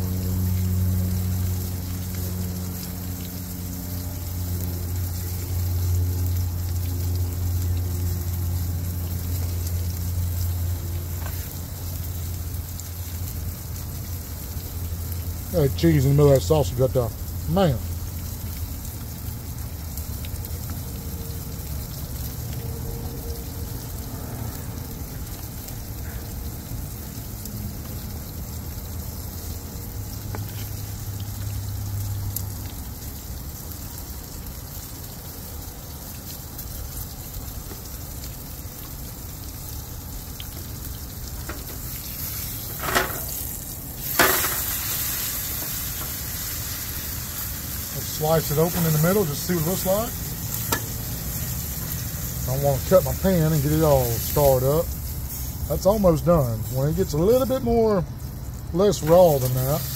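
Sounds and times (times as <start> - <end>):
steak sizzling in a skillet: 0.0 - 59.9
tongs knocking on a pan: 50.7 - 51.0.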